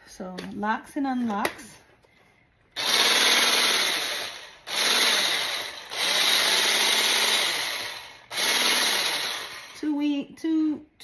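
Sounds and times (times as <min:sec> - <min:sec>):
hand blender motor whirring: 0:02.8 - 0:10.0.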